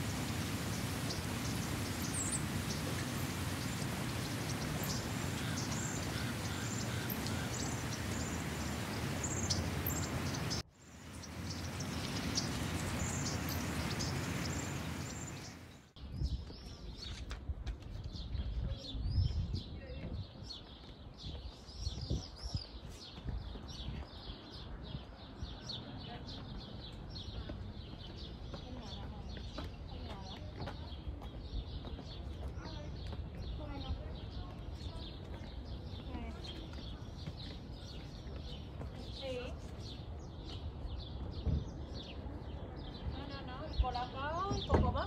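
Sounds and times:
outdoor background hiss: 0:00.0 - 0:16.0
small birds chirping: 0:00.0 - 0:45.0.

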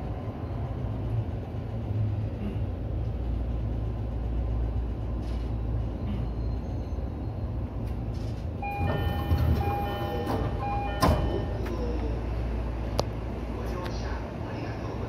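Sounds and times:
train humming: 0:00.0 - 0:15.0
train doors thudding shut: 0:07.9 - 0:12.0
door closing chime: 0:08.6 - 0:11.7.

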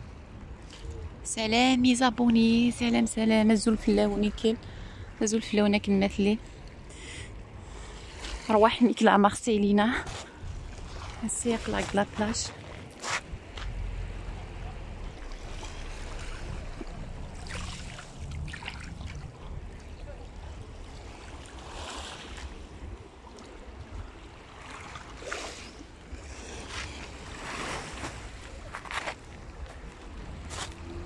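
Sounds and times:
wind rumble on microphone: 0:09.7 - 0:24.5, 0:25.6 - 0:31.0
sea waves lapping on pebbles: 0:09.8 - 0:31.0.

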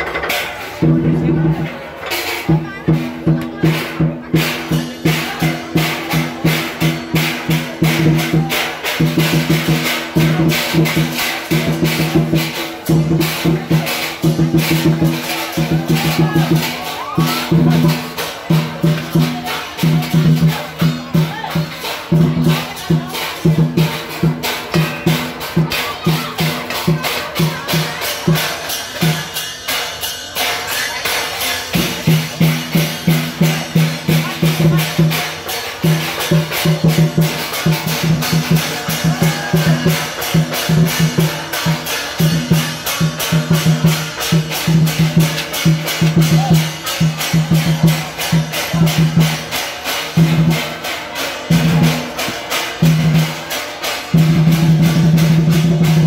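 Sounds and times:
pitched drum beating: 0:00.0 - 0:56.0
sharp clacking percussion hits: 0:00.0 - 0:56.0.

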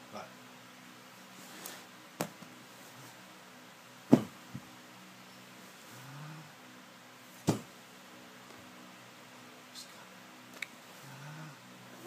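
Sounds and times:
sharp knocks: 0:04.1 - 0:04.4.

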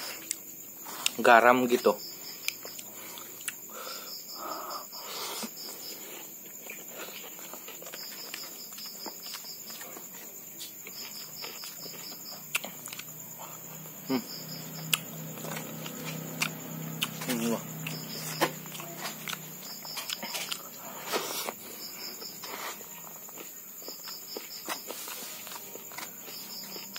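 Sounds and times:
person chewing food: 0:00.0 - 0:01.2, 0:02.3 - 0:03.8, 0:05.0 - 0:26.9
crickets chirping: 0:00.0 - 0:26.9
high insect drone: 0:00.0 - 0:26.9.

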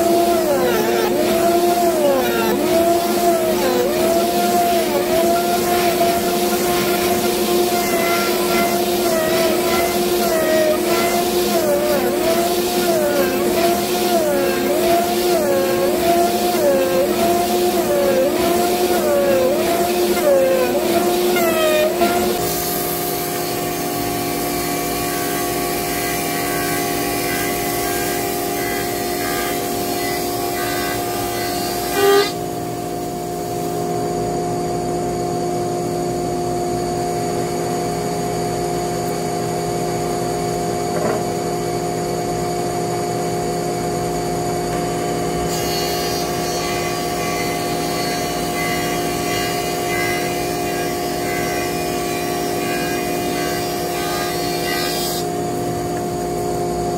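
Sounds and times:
planer cutting wooden board: 0:00.0 - 0:32.6, 0:44.4 - 0:55.4
thickness planer motor hum: 0:00.0 - 0:32.7, 0:38.5 - 0:56.9.

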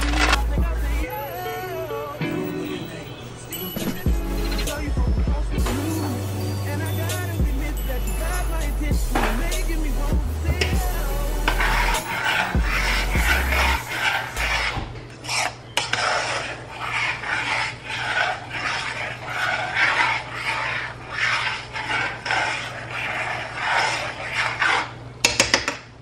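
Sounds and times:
rasping scraping strokes: 0:00.0 - 0:01.1, 0:08.2 - 0:25.0.

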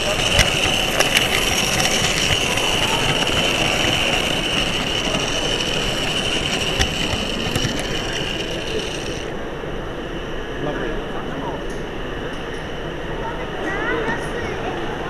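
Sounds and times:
model train motor whine: 0:00.0 - 0:09.4
wheels clicking over rail joints: 0:00.0 - 0:09.4.

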